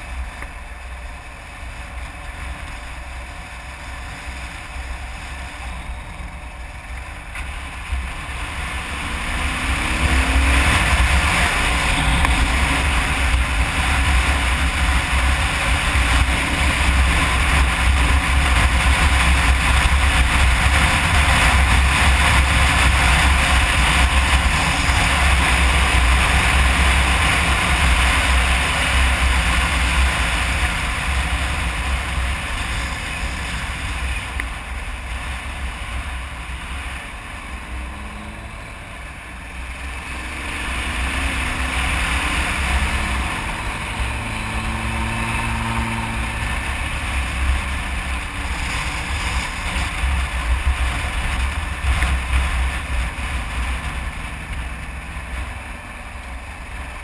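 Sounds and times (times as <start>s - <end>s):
motorcycle engine running: 0.0s - 57.0s
wind rushing over microphone: 0.0s - 57.0s.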